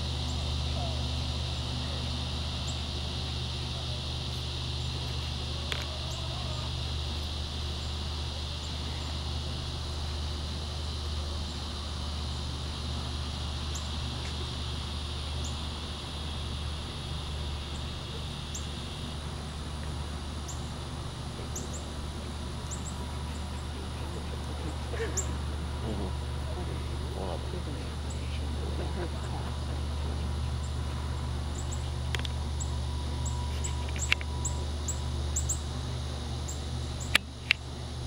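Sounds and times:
insects buzzing high-pitched: 0.0s - 38.0s.

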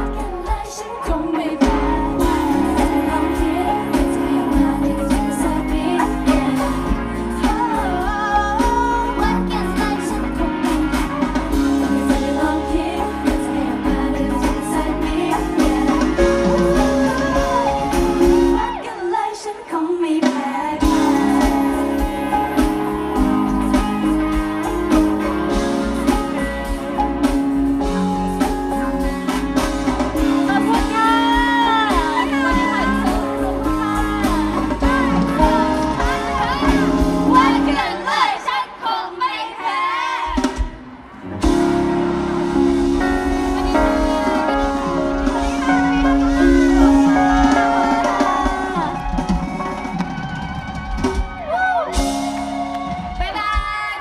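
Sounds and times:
woman singing into microphone: 0.0s - 26.2s, 30.2s - 40.6s, 43.4s - 49.8s
band with drums and guitar: 0.0s - 54.0s.

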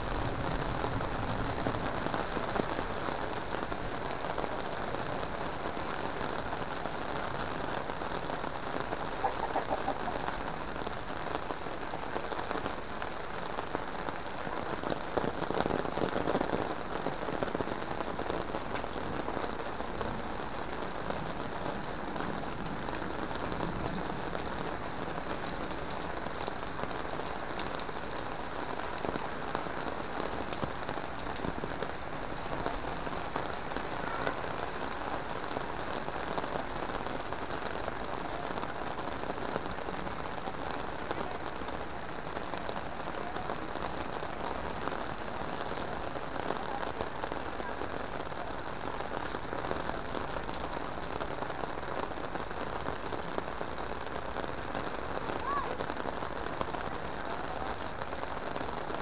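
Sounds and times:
heavy rain on pavement: 0.0s - 59.0s.

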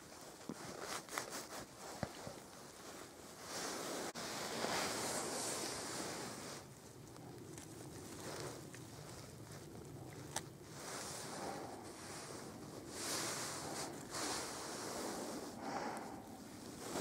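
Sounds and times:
rustling on forest floor: 0.0s - 17.0s.

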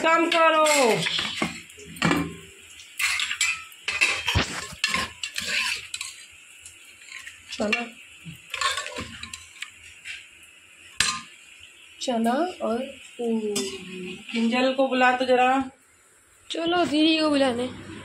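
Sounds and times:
metal ladle scraping a pot: 0.6s - 1.7s, 3.0s - 6.2s, 8.5s - 9.6s.

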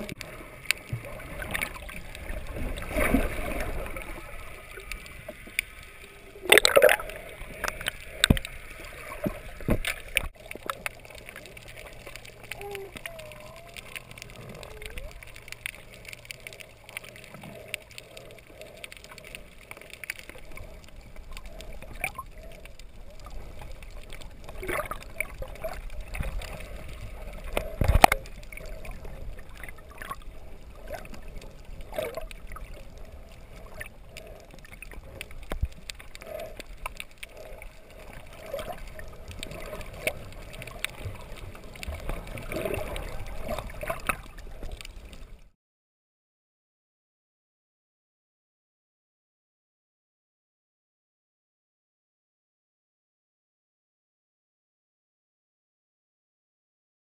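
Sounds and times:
water gurgling and sloshing: 0.0s - 45.5s.

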